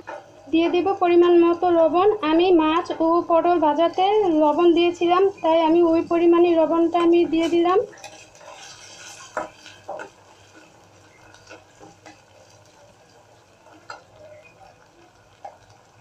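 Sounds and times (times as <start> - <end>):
light sizzle of oil: 0.0 - 16.0
spatula stirring and scraping: 7.4 - 15.7.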